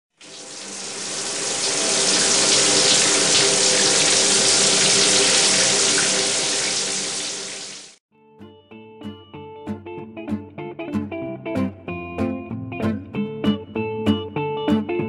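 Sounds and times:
water running from a tap: 0.1s - 8.0s.

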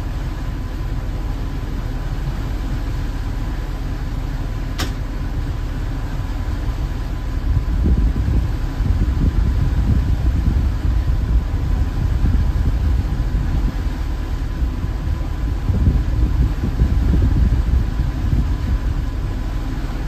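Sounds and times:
boat engine rumbling: 0.0s - 20.0s
sharp click: 4.8s - 5.0s.

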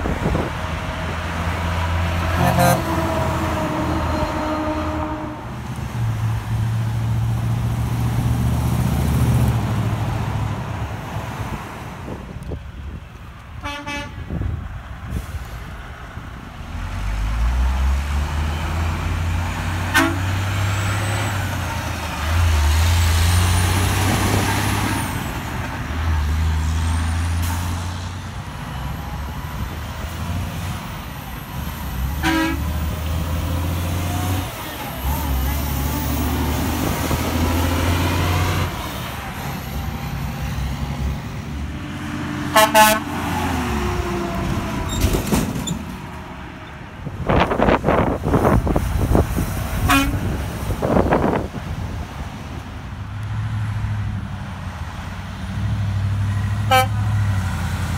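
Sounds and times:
diesel trucks driving past: 0.0s - 57.9s
air horn toots: 2.3s - 5.5s, 13.6s - 14.2s, 19.9s - 20.4s, 32.2s - 32.8s, 42.5s - 43.2s, 49.8s - 50.3s, 56.7s - 57.1s.

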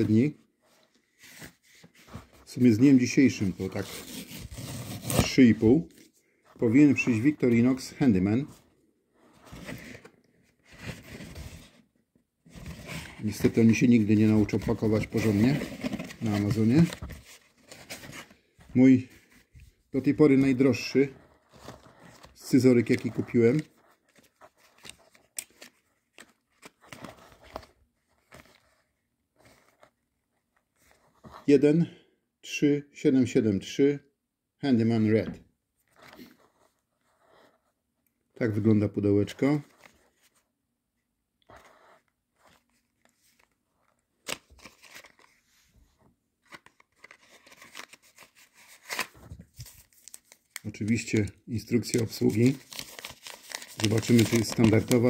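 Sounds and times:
paper leaflet rustling: 0.0s - 8.6s, 12.5s - 30.0s, 41.5s - 55.0s
cardboard box being handled: 15.1s - 18.3s.

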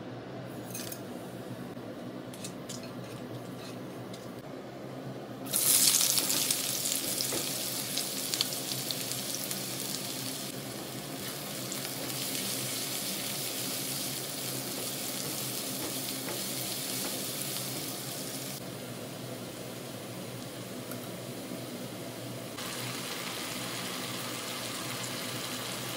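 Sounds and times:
spatula scraping and tapping: 2.3s - 4.4s
onions sizzling in oil: 5.5s - 25.9s.

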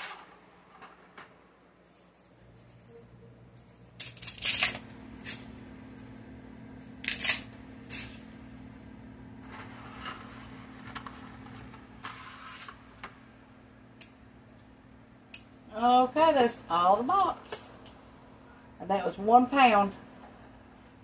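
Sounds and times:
dry spaghetti snapping: 7.0s - 8.1s.

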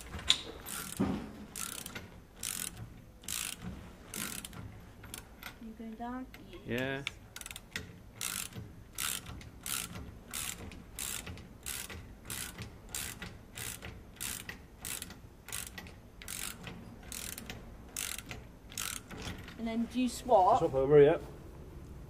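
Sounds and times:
socket ratchet clicking: 1.6s - 5.6s, 7.0s - 19.6s.

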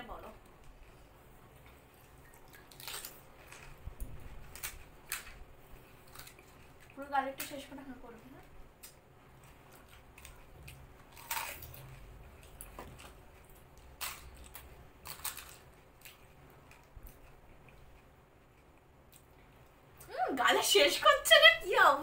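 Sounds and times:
crisp crunches of fried shells: 1.9s - 7.0s, 8.8s - 18.1s.

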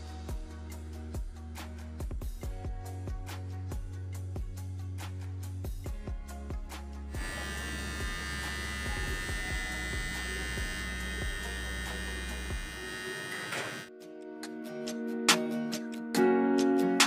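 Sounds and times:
electric beard trimmer buzzing: 7.1s - 13.9s.

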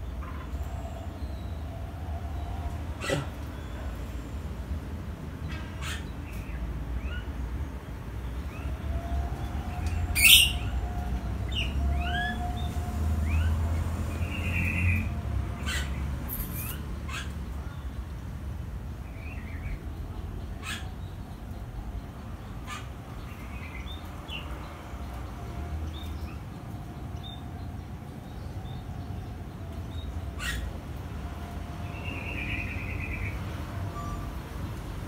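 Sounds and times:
songbird chirping: 8.2s - 18.2s.

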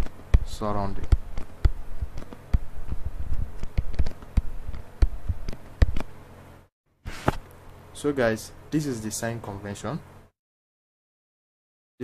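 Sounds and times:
stylus tapping on tablet: 0.0s - 6.2s.

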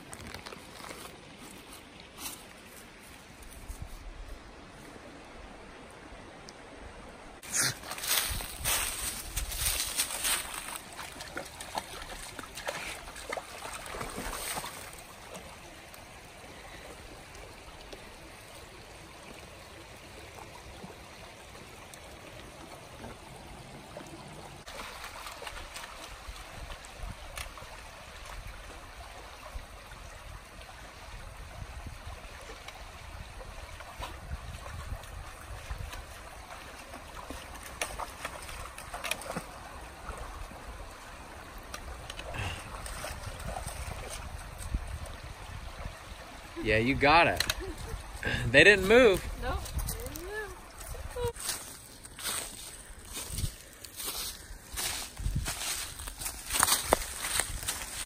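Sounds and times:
creek babbling over stones: 0.0s - 58.0s
dog splashing in water: 10.4s - 15.5s.

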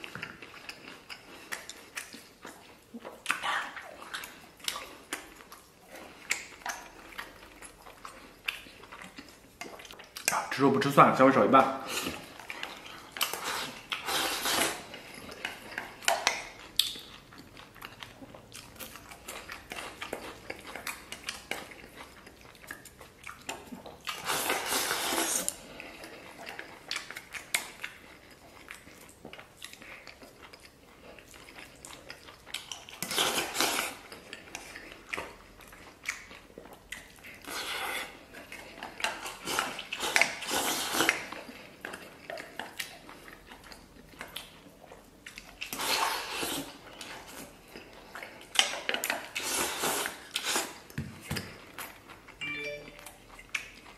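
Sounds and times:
chewing: 0.0s - 11.0s, 11.8s - 53.9s
slurping: 11.8s - 17.3s, 23.3s - 26.8s.

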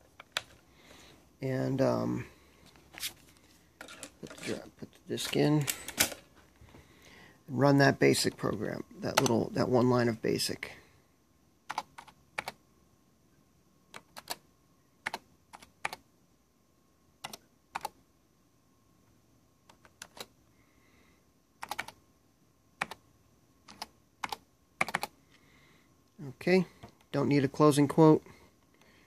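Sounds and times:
keyboard keys clicking: 21.6s - 22.0s, 23.7s - 25.1s.

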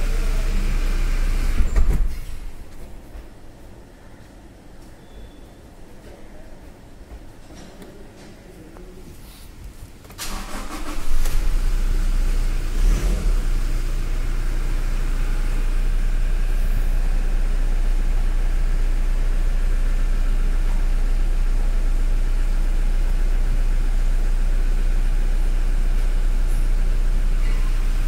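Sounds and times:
car engine idling: 0.0s - 1.6s, 10.2s - 28.0s.

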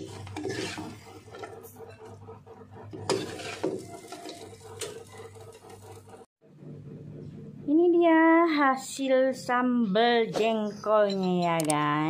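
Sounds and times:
metal spoon scraping wok: 0.0s - 2.2s, 2.9s - 5.9s.

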